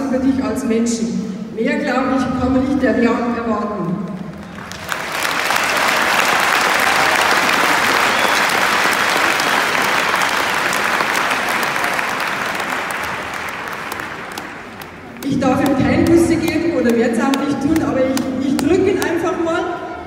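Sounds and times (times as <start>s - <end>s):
crowd applauding: 4.3s - 16.6s.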